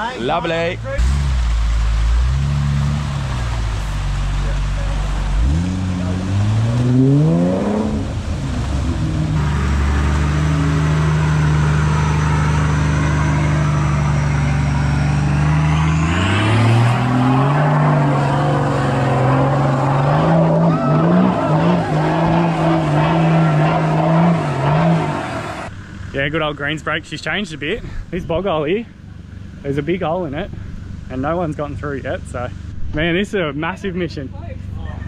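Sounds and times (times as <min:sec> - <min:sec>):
four-wheel drive engine revving: 0:00.9 - 0:27.4.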